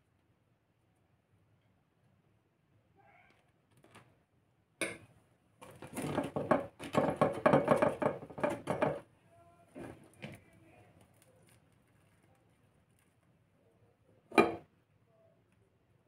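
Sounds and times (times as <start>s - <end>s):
crisp pastry crackling: 10.0s - 13.4s.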